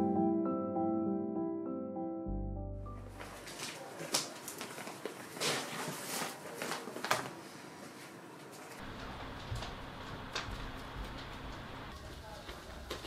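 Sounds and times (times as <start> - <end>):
steady room hiss: 3.1 - 13.0.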